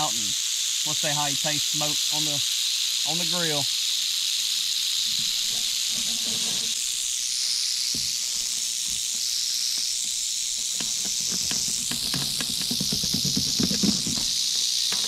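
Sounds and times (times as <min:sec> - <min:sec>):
rattlesnake rattling: 0:00.0 - 0:15.0
faint knocks and clicks: 0:10.6 - 0:15.0.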